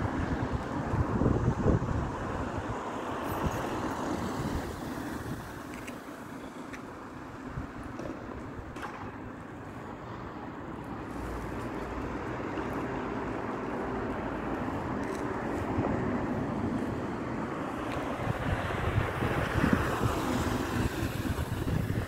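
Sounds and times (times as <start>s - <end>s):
car engine and tyre noise: 0.0s - 22.0s.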